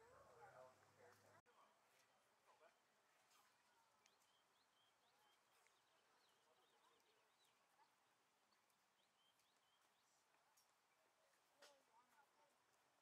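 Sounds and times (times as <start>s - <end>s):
faint bird chirps: 3.1s - 12.0s.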